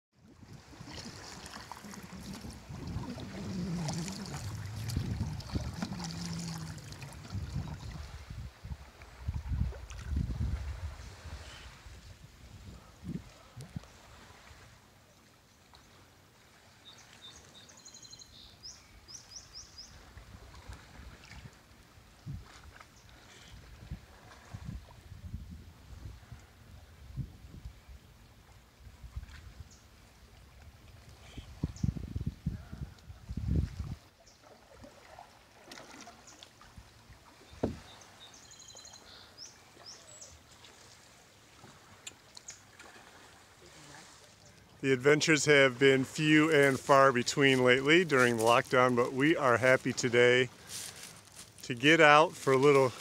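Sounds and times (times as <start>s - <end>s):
faint wind: 0.1s - 53.0s
water noise: 0.1s - 53.0s
low canoe bumps: 0.7s - 8.1s, 37.3s - 38.2s
songbird chirping and trilling: 16.8s - 20.0s, 37.4s - 40.4s
sharp canoe knock: 37.6s - 37.9s.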